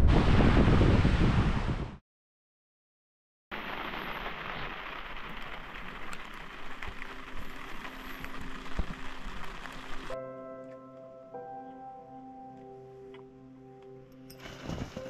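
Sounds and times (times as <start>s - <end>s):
steady rain falling: 3.5s - 10.2s
soft music: 6.6s - 15.0s.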